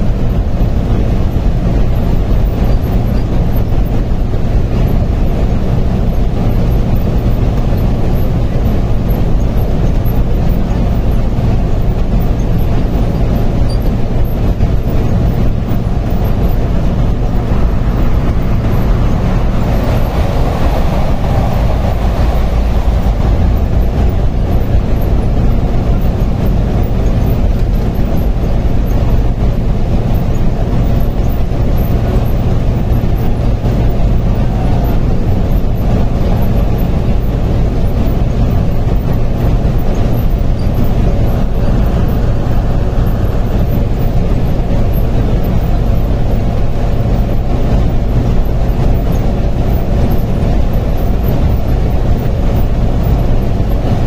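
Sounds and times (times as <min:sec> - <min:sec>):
bus engine and tyre drone: 0:00.0 - 0:54.0.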